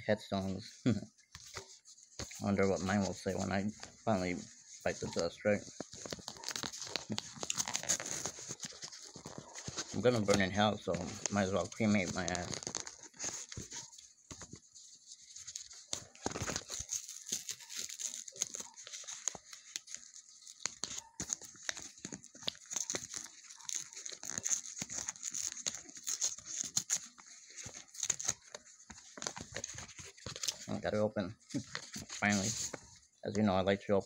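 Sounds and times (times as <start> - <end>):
envelope being torn open: 5.9 - 13.8, 15.5 - 30.7.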